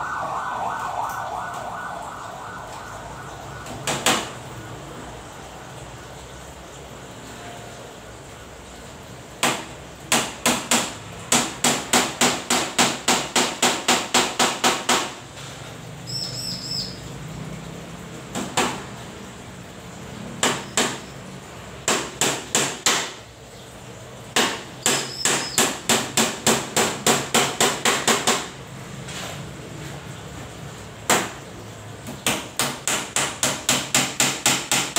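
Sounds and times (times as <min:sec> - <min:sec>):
hammer striking wooden frame: 0:03.6 - 0:04.4, 0:09.4 - 0:15.2, 0:20.4 - 0:21.0, 0:21.8 - 0:23.2, 0:24.4 - 0:28.5, 0:32.2 - 0:34.9.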